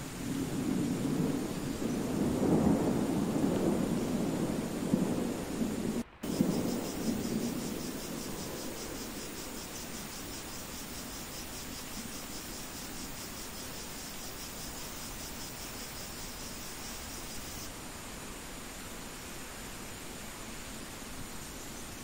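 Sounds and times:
low thunder rumble: 0:00.0 - 0:14.2
crickets chirping: 0:00.0 - 0:22.0
steady rain hiss: 0:00.0 - 0:22.0.

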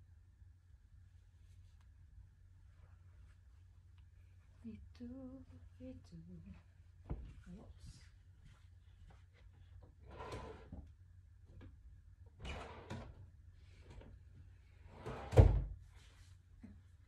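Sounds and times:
wooden drawer sliding: 0:10.0 - 0:10.8, 0:12.4 - 0:13.2, 0:14.9 - 0:15.7.

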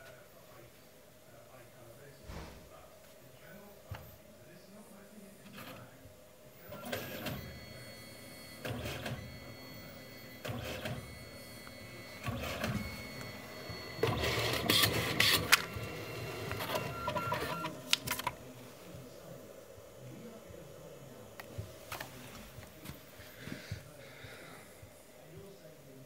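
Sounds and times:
printer printing photo strip: 0:05.2 - 0:06.0, 0:06.6 - 0:19.5, 0:20.2 - 0:24.0
print ejecting clicks: 0:10.3 - 0:18.4.

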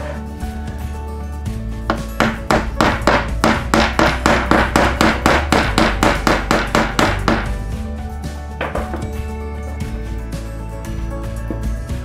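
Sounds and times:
background music: 0:00.0 - 0:12.0
hammer tapping: 0:01.9 - 0:07.5.

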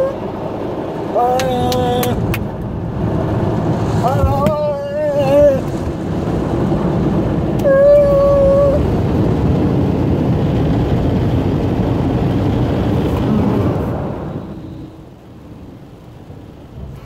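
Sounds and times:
water spray and brushes: 0:03.1 - 0:07.0.

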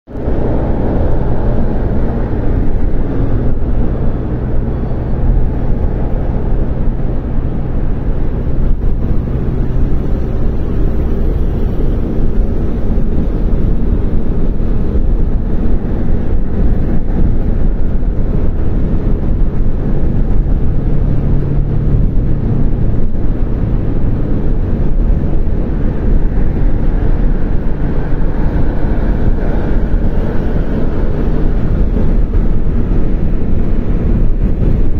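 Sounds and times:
car engine and tyre rumble: 0:00.0 - 0:34.9.

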